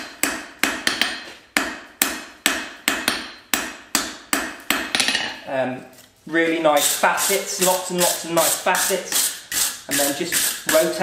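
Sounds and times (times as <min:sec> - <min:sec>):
hammer striking steel on anvil: 0:00.0 - 0:05.4
person speaking: 0:05.3 - 0:11.0.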